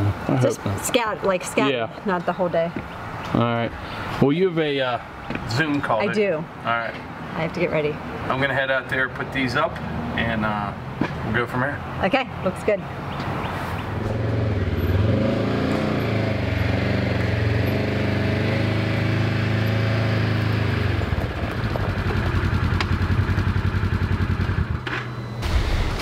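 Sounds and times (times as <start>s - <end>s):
vehicle engine running and idling: 14.0s - 25.7s.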